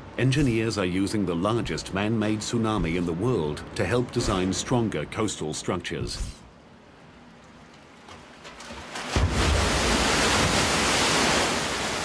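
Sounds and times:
wave rushing down concrete flume: 9.0s - 12.0s.

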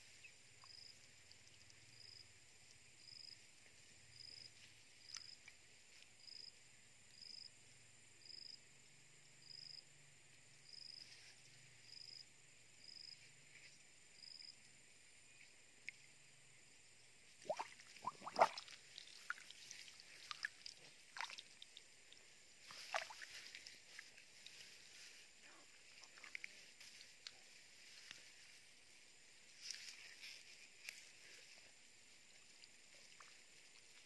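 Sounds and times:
faint high insect chirp: 0.0s - 34.0s
hands splashing in muddy water: 17.4s - 21.8s, 22.7s - 24.1s.

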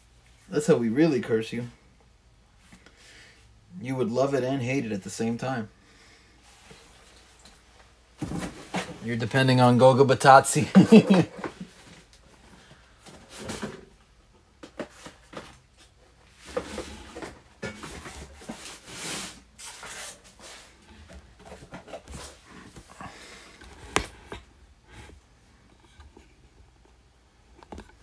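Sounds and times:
rustling and handling noises: 10.6s - 28.0s.

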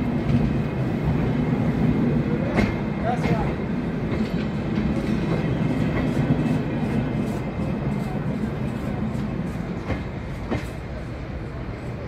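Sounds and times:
train coaches rolling on rails: 0.0s - 12.0s.

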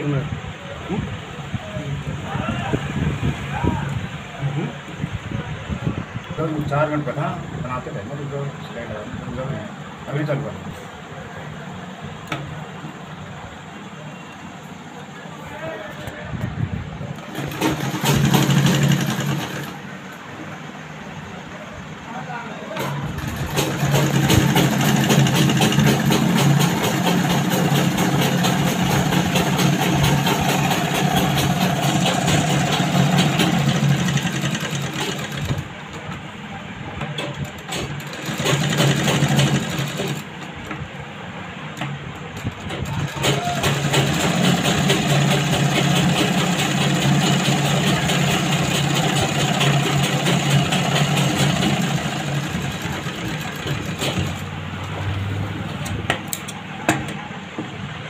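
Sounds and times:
sewing machine running: 17.2s - 19.9s, 22.8s - 36.0s, 37.2s - 40.5s, 42.3s - 54.6s.

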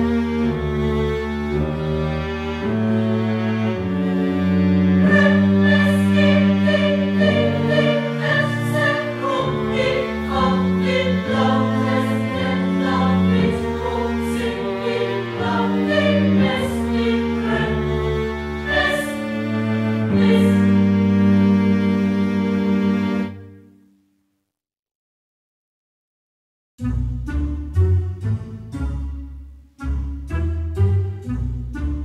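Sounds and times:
choir singing held chords: 4.5s - 21.5s.

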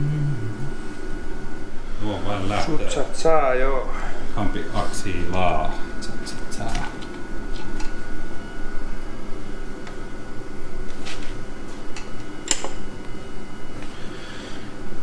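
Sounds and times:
steady mechanical hum: 0.0s - 15.0s.

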